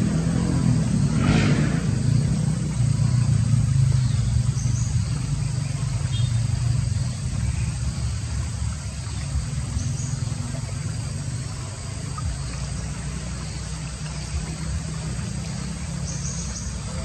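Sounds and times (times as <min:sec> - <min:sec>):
low rumble with hiss: 0:00.0 - 0:17.0.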